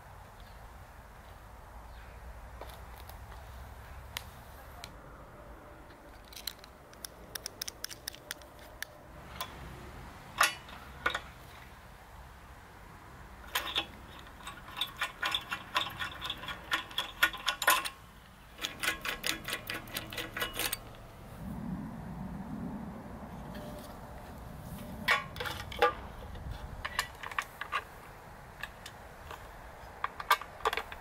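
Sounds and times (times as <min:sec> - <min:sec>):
rivet nut tool clicking: 0:06.2 - 0:09.5, 0:13.5 - 0:21.0.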